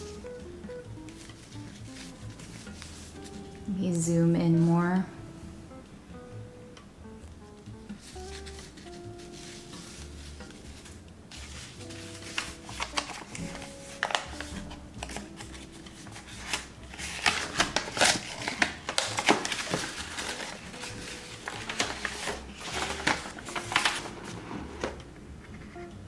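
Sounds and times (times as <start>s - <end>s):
soft background music: 0.0s - 26.0s
paper wrapping rustling: 1.1s - 3.7s, 8.0s - 25.8s.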